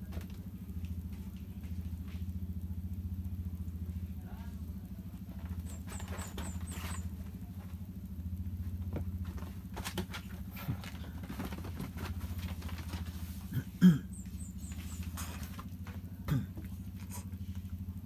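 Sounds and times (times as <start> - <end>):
cats pattering on a sheet: 5.2 - 13.6, 14.2 - 18.0.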